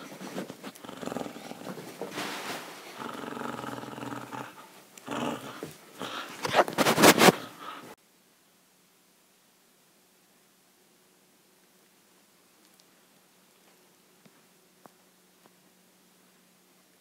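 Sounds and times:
dog growling in play: 0:00.6 - 0:02.1, 0:02.9 - 0:07.7.

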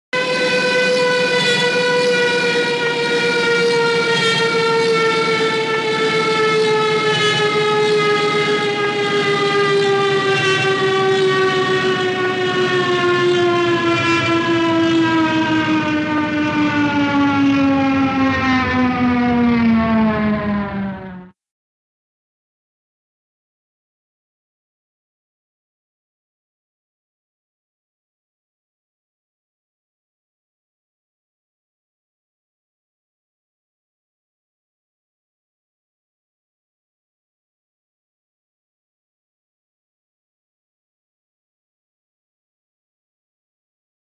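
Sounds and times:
aircraft diving whine: 0:00.2 - 0:21.4.

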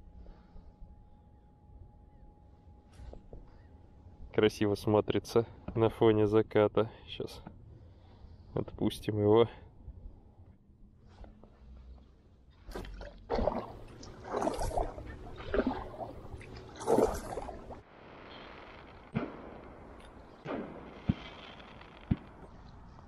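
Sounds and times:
paddle strokes in water: 0:12.6 - 0:17.8
water splashing and dripping: 0:12.6 - 0:17.8.

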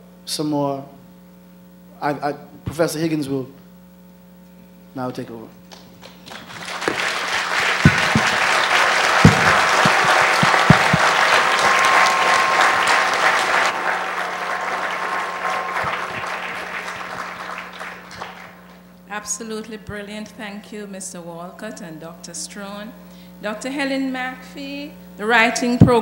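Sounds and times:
large audience applauding: 0:06.0 - 0:18.8.

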